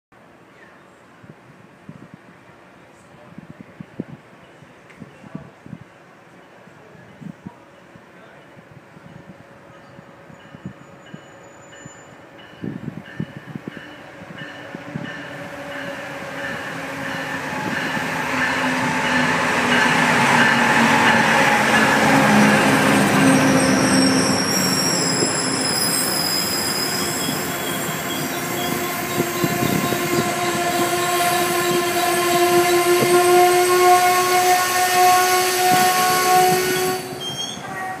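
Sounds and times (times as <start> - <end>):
diesel locomotive passing: 7.8 - 38.0
brake and wheel squeal: 23.3 - 28.8, 36.8 - 37.8.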